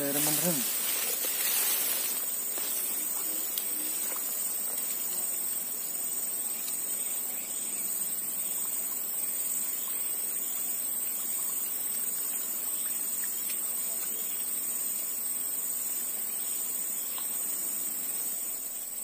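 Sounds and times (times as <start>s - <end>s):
high-pitched insect chorus: 0.0s - 19.0s
faint ticks: 3.0s - 5.0s, 17.1s - 17.4s.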